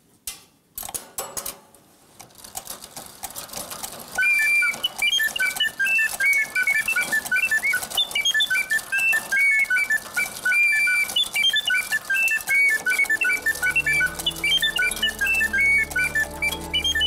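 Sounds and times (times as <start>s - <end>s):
clock mechanism clicks: 2.2s - 17.0s
clockwork whirring and ticking: 2.3s - 17.0s
mechanical bird warbling song: 4.2s - 17.0s.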